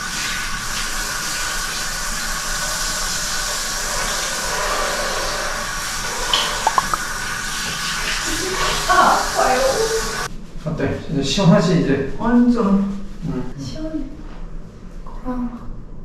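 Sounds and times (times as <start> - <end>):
water spraying from sprayer: 0.0 - 10.3.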